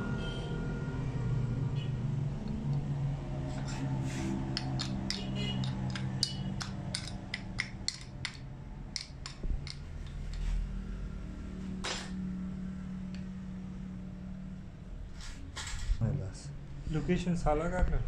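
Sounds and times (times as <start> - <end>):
steady low hum: 0.0 - 18.0
metal scrape: 3.4 - 6.4
metal rod clicking on metal: 4.5 - 10.4.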